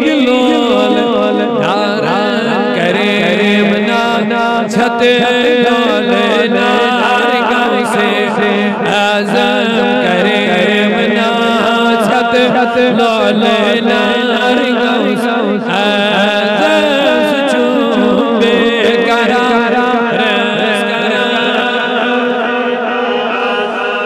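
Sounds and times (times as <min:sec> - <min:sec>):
man chanting into a microphone: 0:00.0 - 0:24.0.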